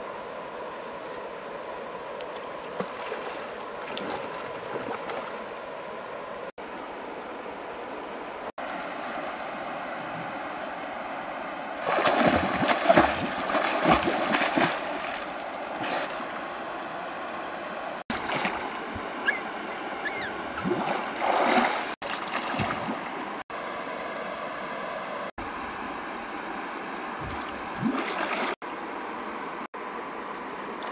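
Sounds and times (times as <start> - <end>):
water splashing from swimming: 11.8 - 15.7, 18.1 - 19.0, 20.6 - 23.1, 27.2 - 28.6.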